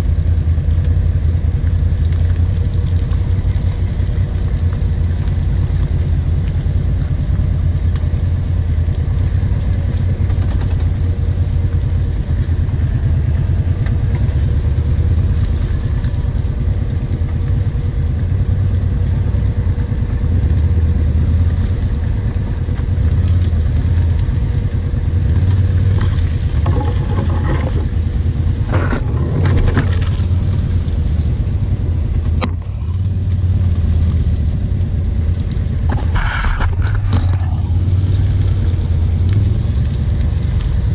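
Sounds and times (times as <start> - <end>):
atv engine running: 0.0 - 40.9
branches and leaves scraping: 25.6 - 30.7.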